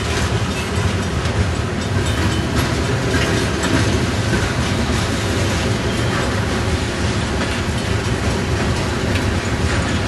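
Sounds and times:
steel wheels rumbling on rail: 0.0 - 10.0.

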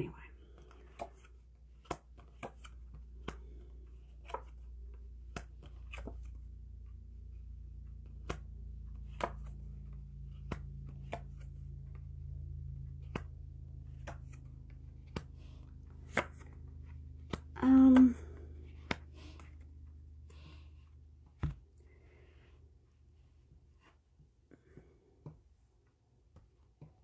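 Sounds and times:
low steady hum: 0.0 - 27.0
cards clicking on tabletop: 0.6 - 6.4, 7.8 - 11.9, 13.0 - 19.6.

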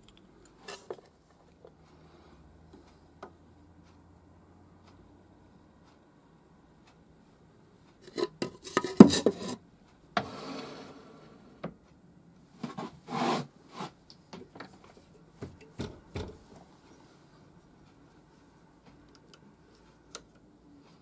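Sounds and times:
metal scrape: 8.0 - 9.6, 10.2 - 11.5.

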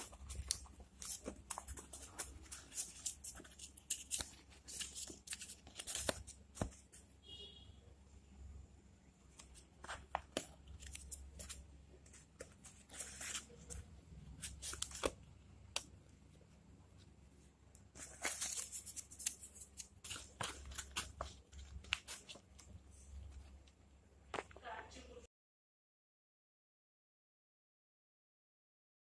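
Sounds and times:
paper rustling: 0.0 - 7.2, 9.3 - 17.1, 17.9 - 23.7.

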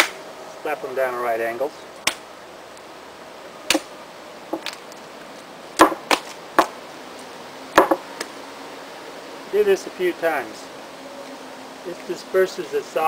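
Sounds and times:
clay slapped onto a slab: 7.8 - 8.3.

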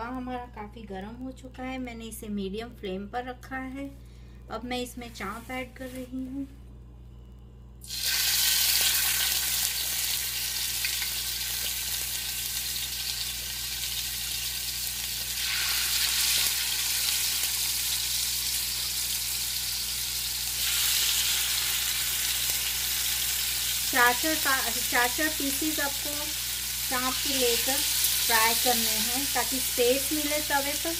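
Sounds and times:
meat sizzling in hot oil: 7.8 - 30.9.

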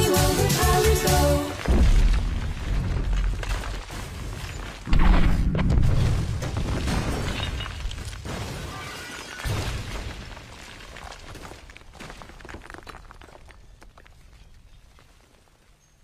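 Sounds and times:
breaking glass and debris: 1.6 - 5.1, 5.8 - 13.4.

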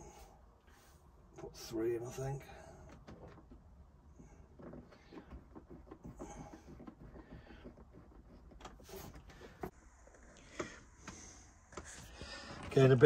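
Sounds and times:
cables rustling: 0.0 - 9.8.

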